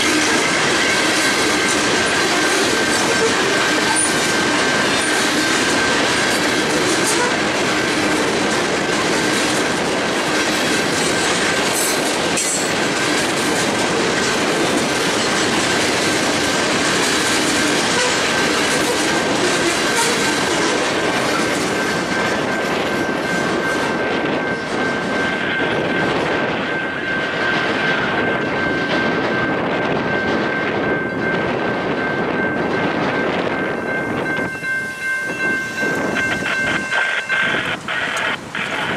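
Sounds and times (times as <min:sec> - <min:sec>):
crossing bell ringing: 0:00.0 - 0:38.9
train wheels clattering over rails: 0:00.0 - 0:38.9.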